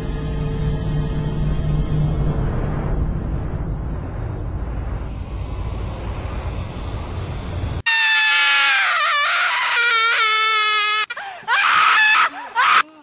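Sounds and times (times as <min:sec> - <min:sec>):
low rumbling drone: 0:00.0 - 0:07.9
person screaming: 0:07.9 - 0:13.0.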